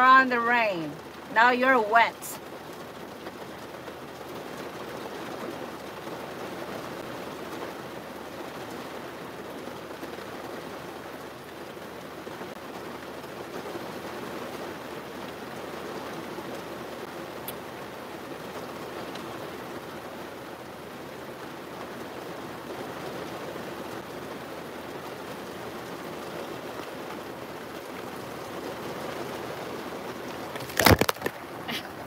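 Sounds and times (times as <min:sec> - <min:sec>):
rain falling on a car: 0:00.0 - 0:32.0.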